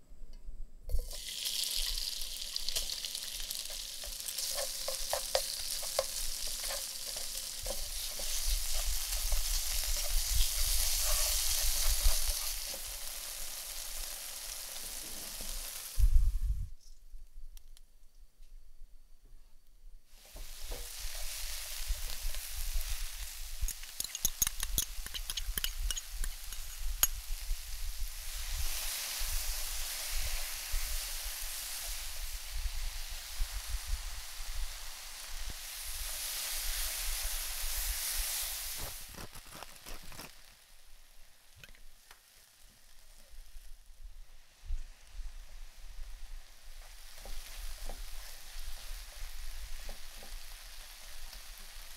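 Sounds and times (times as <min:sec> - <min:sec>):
food sizzling in a pan: 0:00.9 - 0:16.7, 0:20.1 - 0:51.9
spatula scraping a pan: 0:03.6 - 0:13.0, 0:23.8 - 0:27.2.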